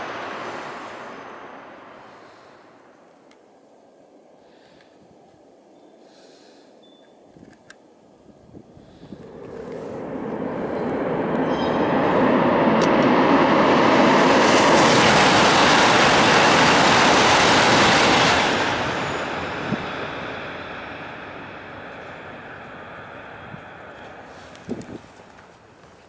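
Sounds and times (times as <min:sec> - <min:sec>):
high-speed train rushing past: 0:00.0 - 0:03.3, 0:08.8 - 0:25.8.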